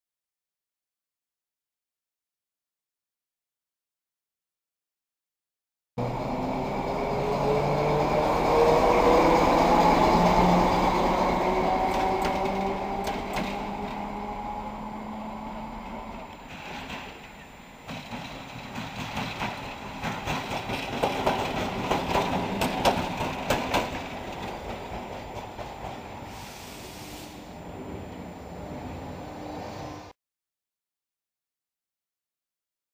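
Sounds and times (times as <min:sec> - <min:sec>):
diesel locomotive engine accelerating: 0:06.0 - 0:30.2
wheels clacking over rail joints: 0:07.0 - 0:14.3, 0:15.8 - 0:26.2.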